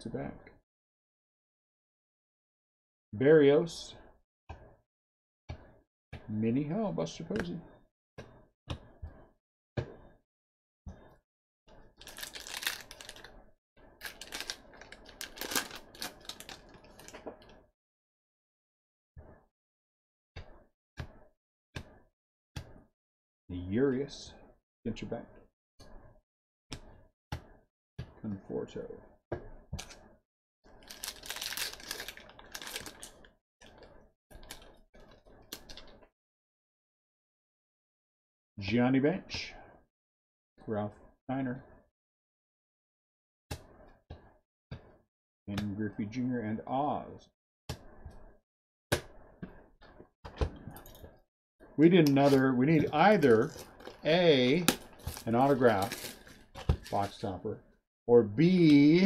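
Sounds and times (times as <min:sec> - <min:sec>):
wrapper tearing and crinkling: 0:12.0 - 0:13.3, 0:14.0 - 0:17.2, 0:30.8 - 0:33.2, 0:52.2 - 0:57.2
cards being handled: 0:52.0 - 0:57.2.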